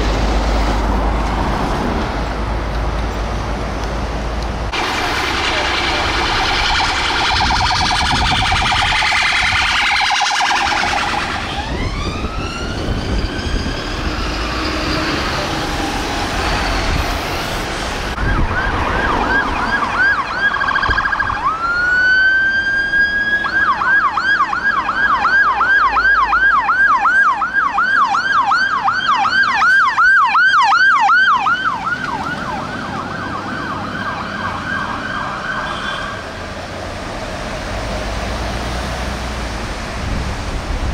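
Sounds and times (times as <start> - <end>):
police car siren: 4.7 - 17.5, 18.1 - 36.4
fire engine siren wail and yelp: 4.7 - 40.9.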